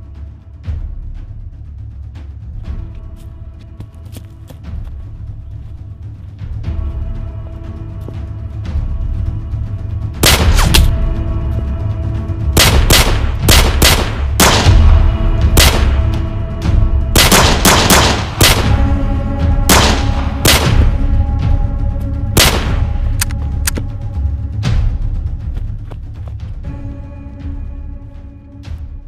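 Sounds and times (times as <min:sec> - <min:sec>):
tense film music: 0:00.0 - 0:29.0
gunshots with echo: 0:10.2 - 0:10.9, 0:12.6 - 0:16.1, 0:17.2 - 0:18.9, 0:19.7 - 0:21.0, 0:22.4 - 0:23.0.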